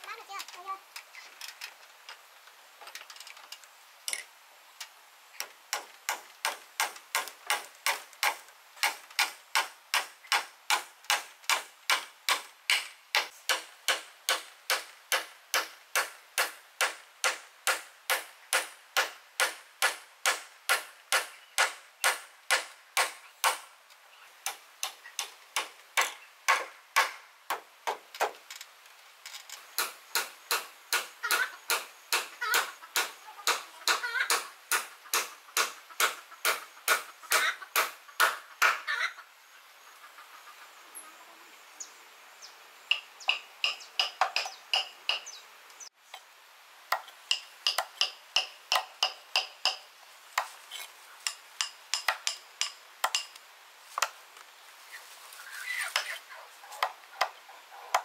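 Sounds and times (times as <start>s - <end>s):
hand tool striking: 46.9s - 49.8s, 50.4s - 53.4s.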